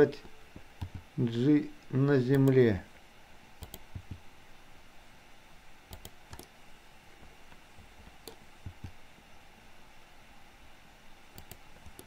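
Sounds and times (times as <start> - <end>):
faint room noise: 0.0 - 12.0
mouse and keyboard clicks: 0.2 - 1.1, 3.6 - 4.2, 5.9 - 6.5, 7.8 - 9.0, 11.4 - 12.0.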